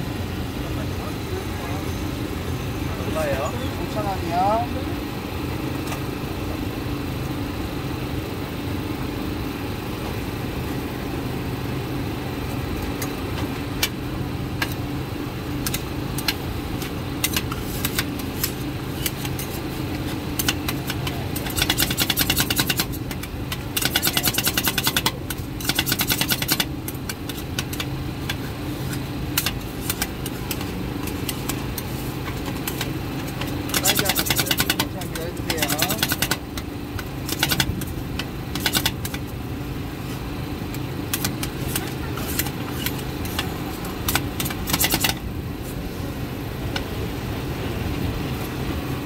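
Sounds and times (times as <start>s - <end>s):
low machine hum: 0.0s - 49.0s
metal spatulas tapping and scraping: 29.4s - 36.7s.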